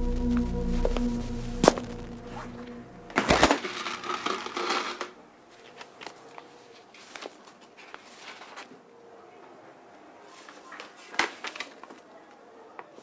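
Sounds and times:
background music: 0:00.0 - 0:03.5
handling envelopes and letters: 0:05.5 - 0:08.8
paper rustling: 0:05.5 - 0:08.8.

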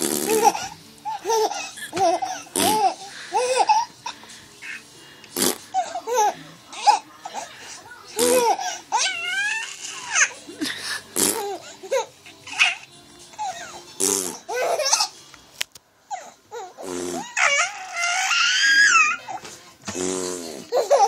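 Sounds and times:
man making mouth farting noises: 0:00.0 - 0:00.5, 0:05.4 - 0:05.7, 0:11.2 - 0:11.4, 0:14.0 - 0:14.4, 0:16.8 - 0:17.3, 0:19.9 - 0:20.6.

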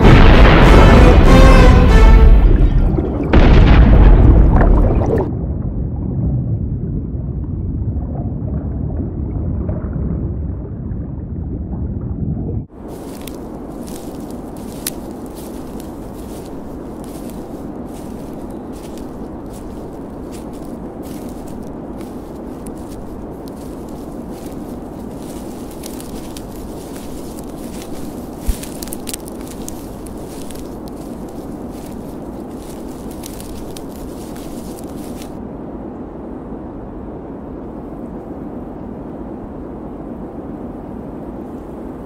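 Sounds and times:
underwater rumble: 0:00.0 - 0:35.4
faint bubbling: 0:02.5 - 0:05.3
faint clicks and crackles: 0:12.9 - 0:35.4.

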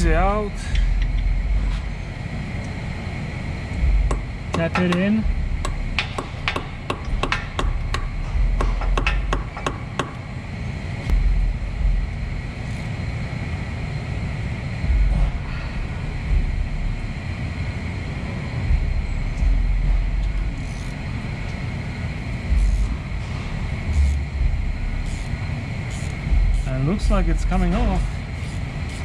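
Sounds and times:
steady low rumble: 0:00.0 - 0:29.0
hammer tapping metal: 0:04.1 - 0:10.2.

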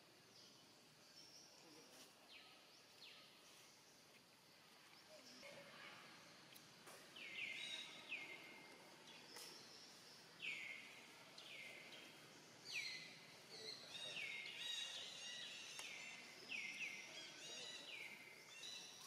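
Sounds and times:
faint outdoor background: 0:00.0 - 0:19.0
bird chirping: 0:07.1 - 0:19.0.

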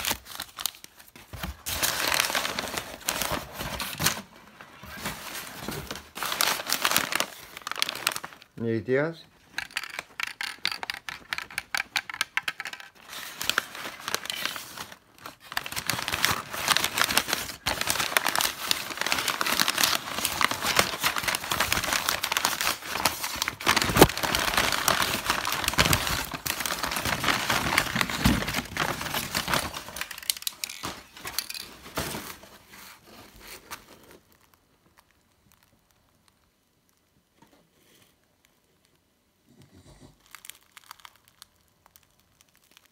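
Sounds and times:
paper crumpling and tearing: 0:00.0 - 0:08.5, 0:13.0 - 0:35.7, 0:40.1 - 0:42.9.

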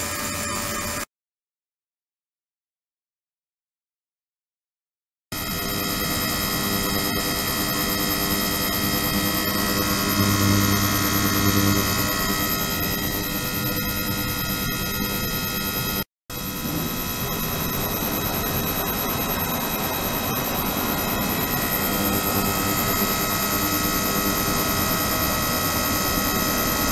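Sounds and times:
low hum: 0:05.6 - 0:26.9.

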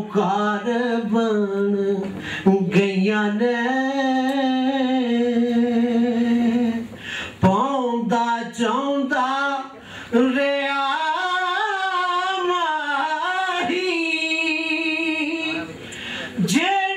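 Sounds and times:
man singing unaccompanied: 0:00.0 - 0:15.8, 0:16.4 - 0:16.9
breath: 0:02.1 - 0:02.5, 0:06.9 - 0:07.4, 0:09.8 - 0:10.2, 0:15.8 - 0:16.4.

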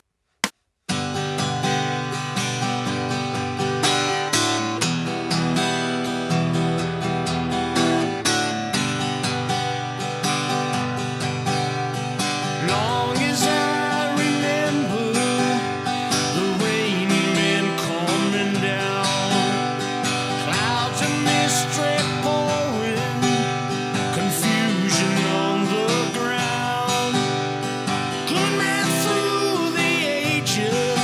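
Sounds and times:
acoustic guitar strumming: 0:00.9 - 0:31.0.

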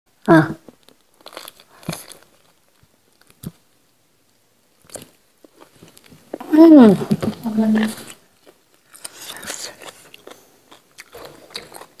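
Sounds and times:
chewing and crunchy bites: 0:00.7 - 0:03.6, 0:08.1 - 0:12.0.

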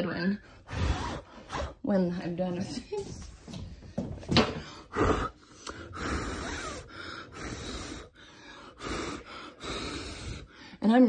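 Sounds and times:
person blowing hard: 0:04.9 - 0:08.2.

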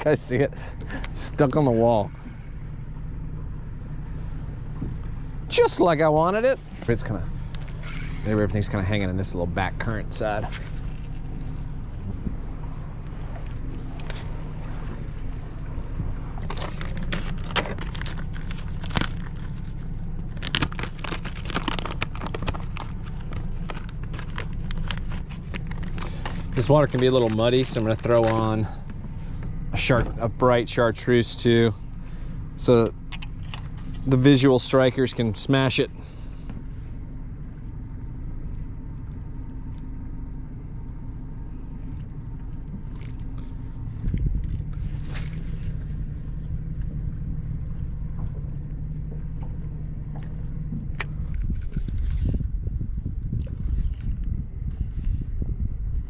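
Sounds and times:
boat motor rumbling: 0:00.0 - 0:56.0
steady low hum: 0:00.0 - 0:56.0
plastic crinkling: 0:16.4 - 0:28.6.

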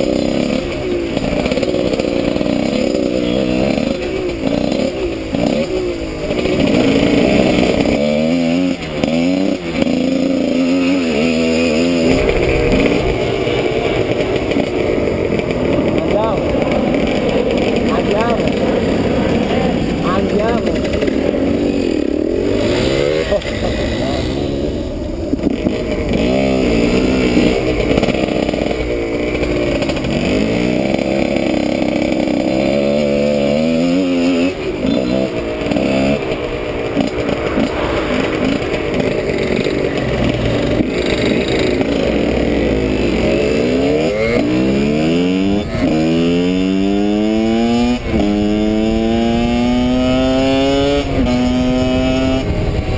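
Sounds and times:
motorcycle engine revving: 0:00.0 - 0:52.9
wind noise: 0:12.0 - 0:20.1, 0:48.0 - 0:52.9.

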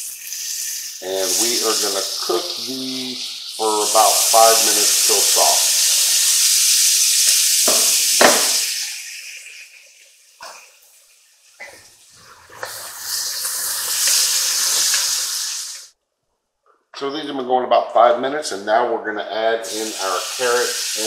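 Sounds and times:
onion sizzling in oil: 0:00.0 - 0:15.9, 0:19.7 - 0:21.0
utensil knocking on pot: 0:07.7 - 0:08.6.

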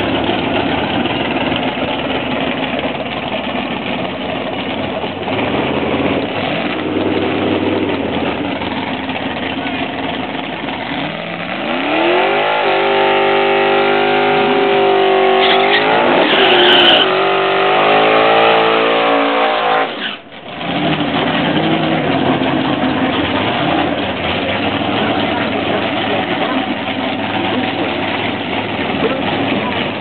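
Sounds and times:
drag car engine running steadily: 0:00.0 - 0:30.0
car engine revving hard: 0:05.2 - 0:08.6, 0:10.7 - 0:30.0.

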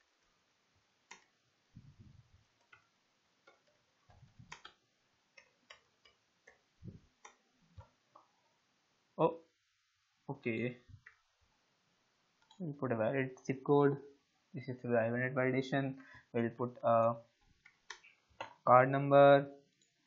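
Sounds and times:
computer keyboard typing: 0:04.5 - 0:04.8.

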